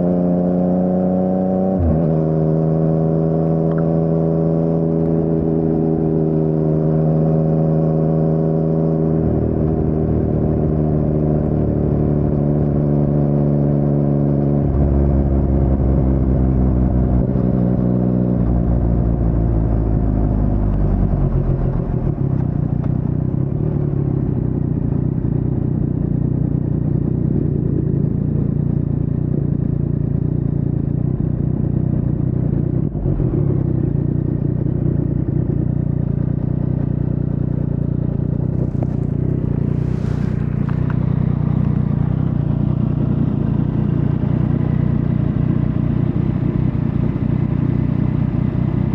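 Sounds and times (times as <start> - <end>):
motorcycle engine running: 0.0 - 48.9.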